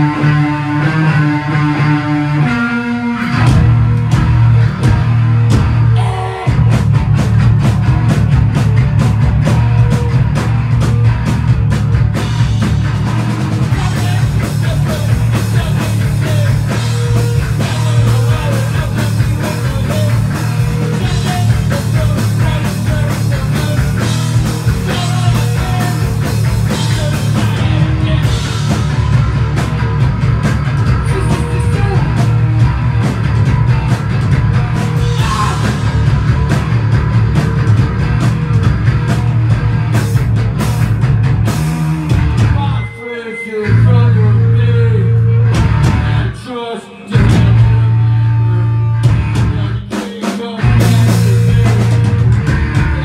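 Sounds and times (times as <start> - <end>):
punk band playing live: 0.0 - 53.0
pounding drums: 3.4 - 42.8, 47.2 - 48.0, 49.0 - 53.0.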